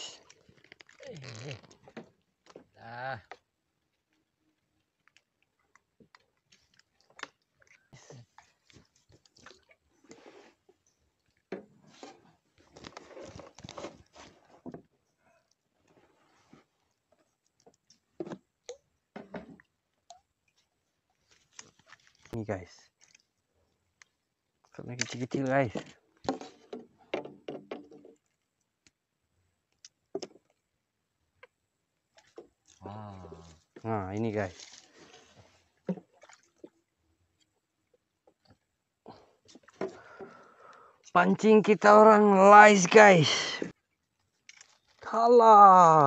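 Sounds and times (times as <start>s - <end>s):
fishing pole handling noises: 0.2s - 2.6s, 11.4s - 14.8s, 44.4s - 45.0s.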